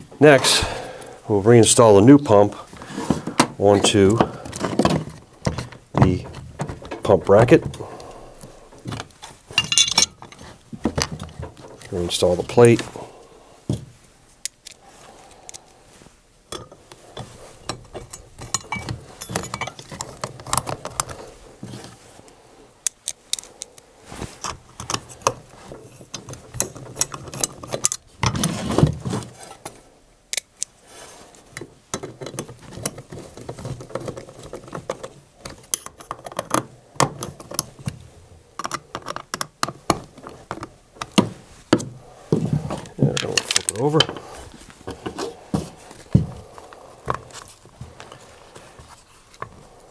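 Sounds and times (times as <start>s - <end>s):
small screws rattling: 9.6s - 10.4s.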